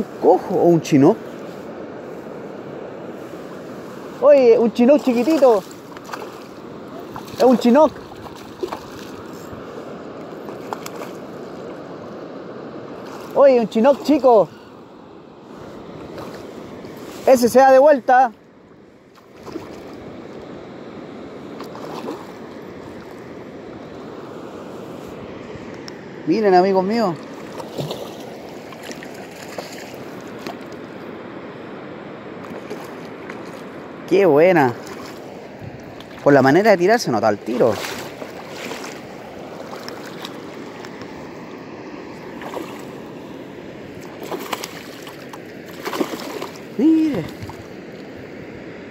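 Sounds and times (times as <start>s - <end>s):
river water rushing: 0.0s - 48.9s
faint splashes: 4.2s - 11.9s, 13.0s - 14.7s, 15.5s - 17.4s, 19.1s - 20.1s, 21.5s - 23.3s, 26.9s - 30.8s, 32.4s - 33.7s, 34.4s - 41.2s, 42.1s - 48.1s
fish splashing at surface: 27.4s - 30.6s, 44.0s - 47.6s
wind noise: 34.8s - 36.7s, 45.8s - 48.5s.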